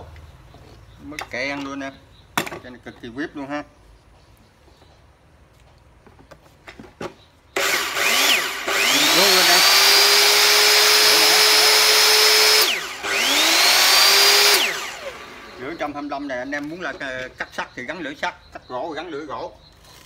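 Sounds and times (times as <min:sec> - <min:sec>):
electric saw motor whining: 0:07.6 - 0:15.9.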